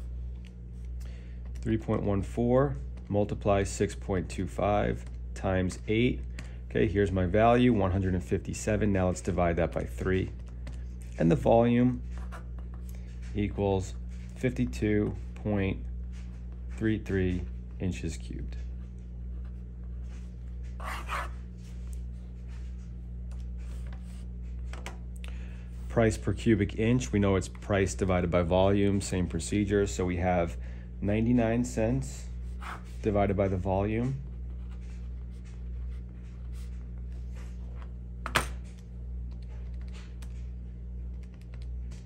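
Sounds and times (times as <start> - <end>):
steady low hum: 0.0 - 42.0
felt-tip pen scratching on paper: 20.7 - 21.3, 32.4 - 33.0.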